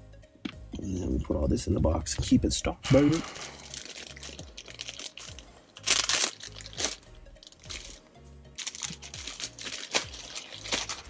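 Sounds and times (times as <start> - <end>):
background music with deep bass: 0.0 - 11.0
plastic bag crinkling: 3.2 - 8.0, 8.6 - 11.0.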